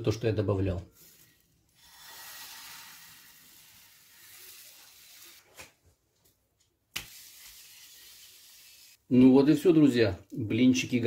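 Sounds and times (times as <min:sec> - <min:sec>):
batter sizzling in frying pan: 0:01.8 - 0:05.4, 0:07.0 - 0:09.0.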